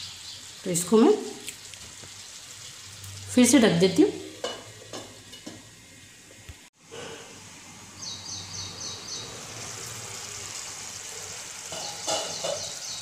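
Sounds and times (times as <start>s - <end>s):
curry sizzling in a pan: 0.0s - 13.0s
bird chirping: 8.0s - 9.4s.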